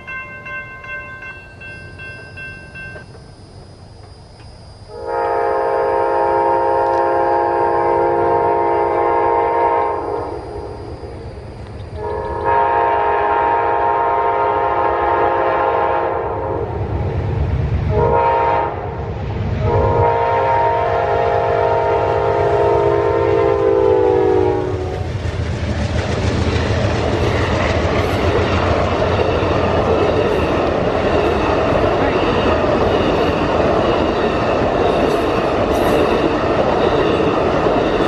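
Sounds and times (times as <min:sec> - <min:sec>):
locomotive horn blasts: 0:04.9 - 0:10.9, 0:12.0 - 0:16.7, 0:17.9 - 0:19.0, 0:19.6 - 0:25.0
train wheels clacking on rails: 0:24.6 - 0:38.0.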